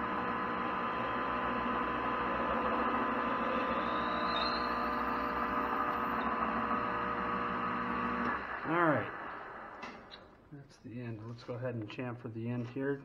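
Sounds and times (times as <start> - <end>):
drill cutting into brass: 0.0 - 9.9
metal lathe motor hum: 0.0 - 10.1.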